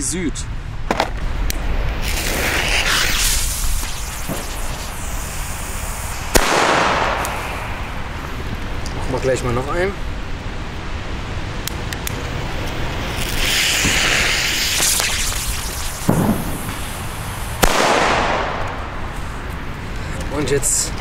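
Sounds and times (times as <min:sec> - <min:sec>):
fuse hissing and spitting: 0:02.0 - 0:06.4, 0:13.1 - 0:17.6
firework bang with echo: 0:06.3 - 0:07.8, 0:13.8 - 0:17.0, 0:17.6 - 0:19.0.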